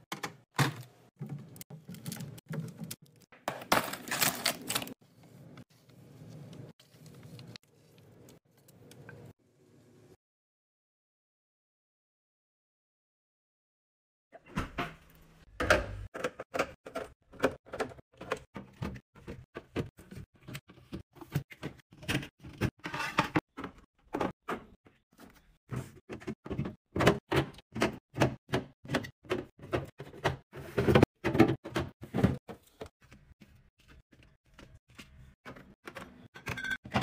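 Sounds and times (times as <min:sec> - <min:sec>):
bottles and cans knocking on shelves: 0:26.1 - 0:32.6.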